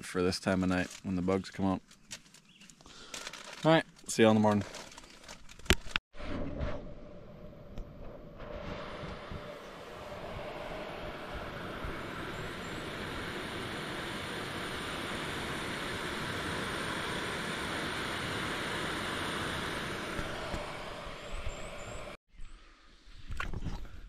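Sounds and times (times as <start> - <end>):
camping stove burner hissing: 8.7 - 22.2.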